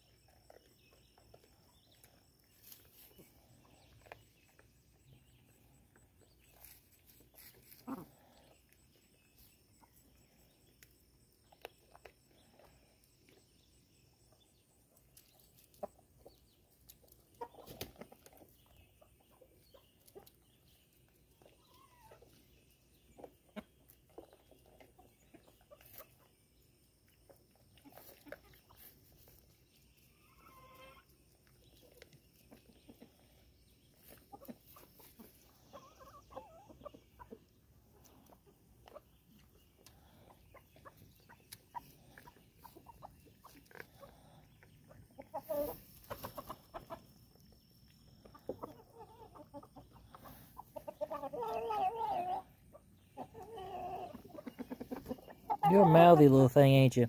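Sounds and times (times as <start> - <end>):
chickens clucking: 0.0 - 57.0.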